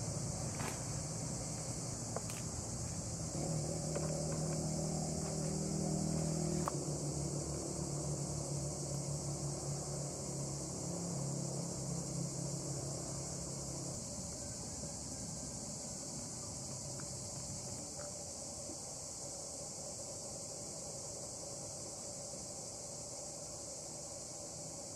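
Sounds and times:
low steady hum: 0.0s - 18.8s
high-pitched insect chorus: 0.0s - 24.9s.

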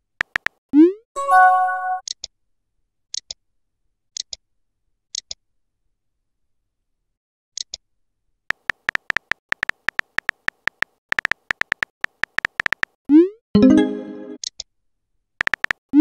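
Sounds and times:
phone keyboard tap clicks: 0.2s - 0.6s, 8.5s - 13.0s, 15.4s - 15.8s
chime: 1.2s - 2.0s.

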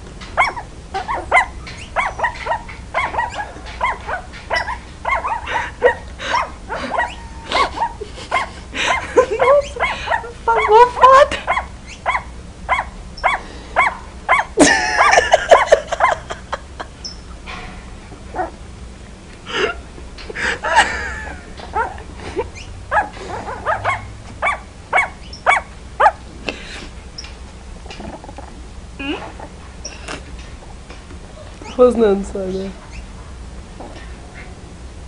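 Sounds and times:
puppy yipping: 0.4s - 16.3s, 21.7s - 22.0s, 22.6s - 26.2s.

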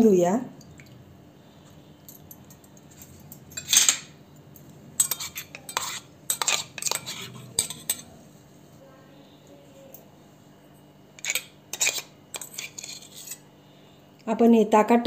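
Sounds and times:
steel spoon clinking and scraping jar: 2.1s - 8.2s, 11.2s - 13.4s.

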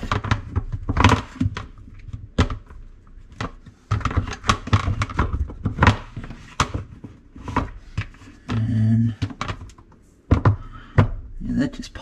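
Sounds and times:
plastic parts clicking and snapping: 0.0s - 8.6s.

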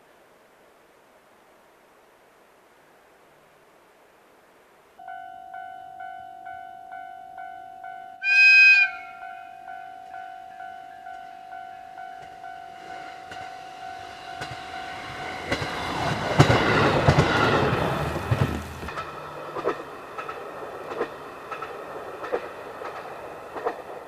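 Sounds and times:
train horn: 7.4s - 15.6s
wheels clacking over rail joints: 12.0s - 24.0s
rush of train wheels: 12.2s - 24.0s.

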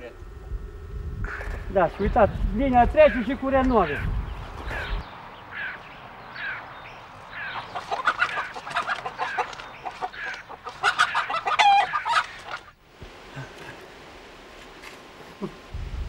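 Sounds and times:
chickens clucking: 6.4s - 12.8s.

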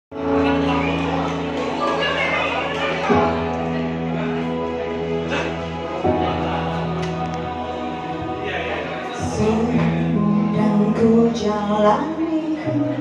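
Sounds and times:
live band playing chords: 0.1s - 13.0s
woman singing: 9.2s - 13.0s.

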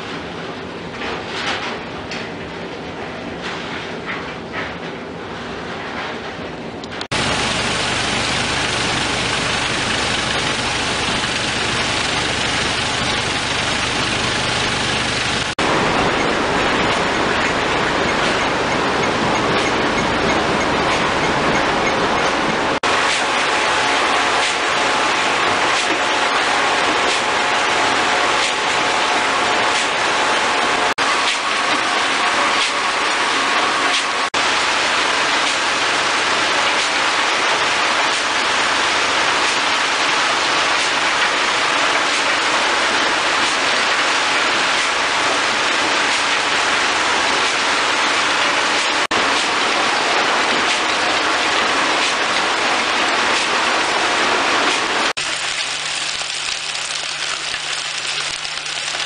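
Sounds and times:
conveyor machinery rushing din: 0.0s - 59.0s
machine hum: 6.9s - 36.6s
wet coal pouring through chutes: 7.1s - 18.0s, 22.8s - 59.0s.

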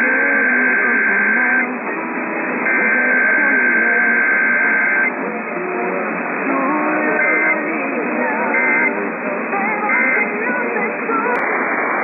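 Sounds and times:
faint garbled voices: 0.0s - 12.0s
radio static: 0.0s - 12.0s
high data tone bursts: 2.6s - 5.2s, 6.6s - 9.1s.

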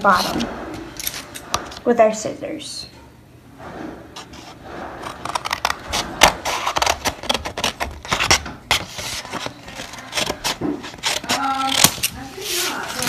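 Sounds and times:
paper rustling and crackling: 4.2s - 13.0s.

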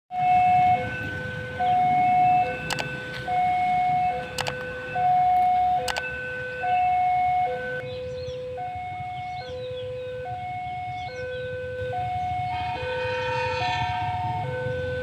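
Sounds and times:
level crossing two-tone alarm: 0.1s - 7.8s, 8.6s - 15.0s
sharp clicks: 2.6s - 3.2s, 4.2s - 4.7s, 5.4s - 6.1s.

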